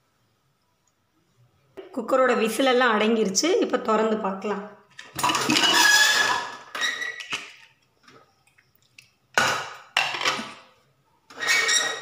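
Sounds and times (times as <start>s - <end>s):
pot lid scraping and ringing: 5.2s - 7.2s.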